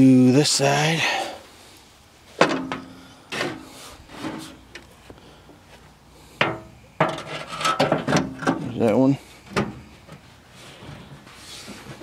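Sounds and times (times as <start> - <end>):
sheet metal clanks: 6.4 - 8.7
metal knocks and rattles: 6.4 - 8.8.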